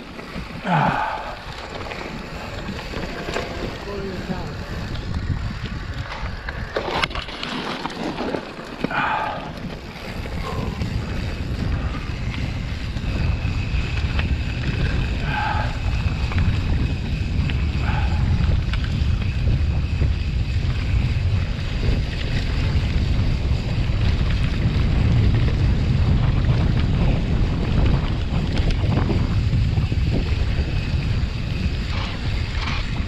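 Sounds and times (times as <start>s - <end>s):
bike clicking and rattling: 0.0s - 33.0s
wind buffeting microphone: 0.0s - 33.0s
heavy low rumble: 8.8s - 33.0s.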